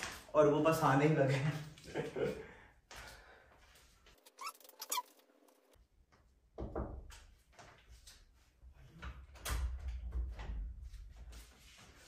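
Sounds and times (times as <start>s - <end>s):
short rising squeaks: 4.2s - 5.4s.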